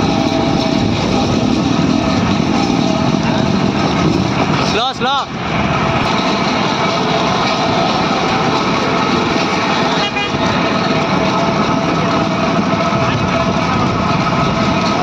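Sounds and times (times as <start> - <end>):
cars and motorbikes passing: 0.0 - 15.0
cart wheels rumbling on tarmac: 0.0 - 15.0
steady tone: 0.0 - 15.0.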